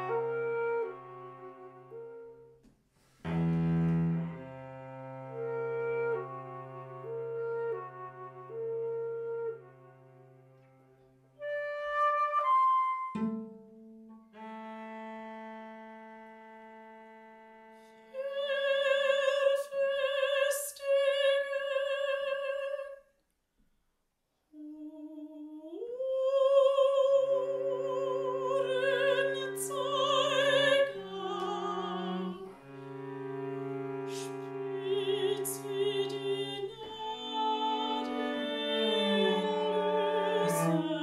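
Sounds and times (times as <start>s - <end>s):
low cello notes: 3.2s - 11.8s, 12.4s - 20.5s, 27.2s - 41.0s
woman singing operatically: 18.2s - 23.0s, 24.6s - 32.5s, 34.7s - 41.0s.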